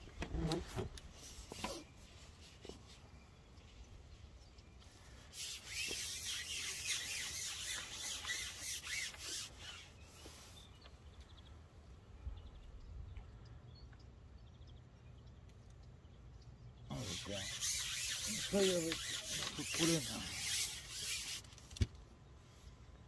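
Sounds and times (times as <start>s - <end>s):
handling rustling and scraping: 0.0s - 11.0s, 17.0s - 22.8s.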